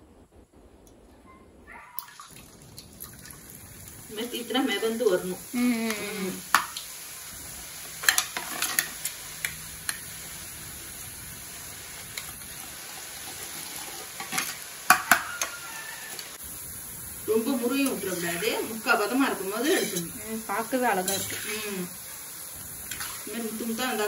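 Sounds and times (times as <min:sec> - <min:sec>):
batter sizzling in hot oil: 0:02.1 - 0:24.0.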